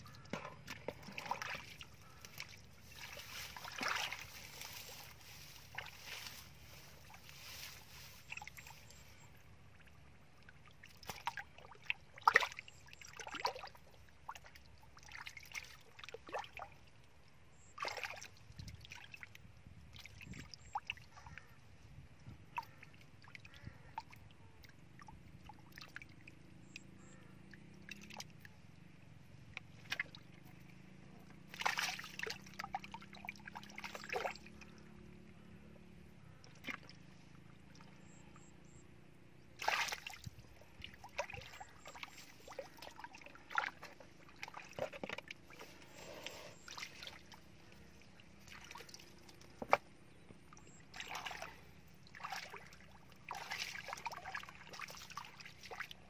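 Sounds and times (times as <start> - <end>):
hands splashing in muddy water: 0.4 - 8.7, 31.5 - 32.7, 39.6 - 40.3.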